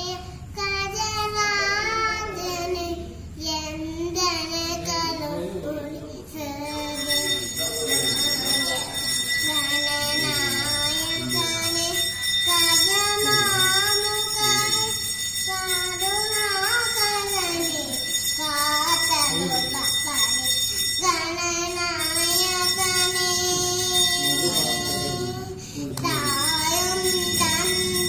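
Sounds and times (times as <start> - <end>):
girl singing into microphone: 0.0 - 6.9, 9.5 - 14.9, 15.5 - 17.9.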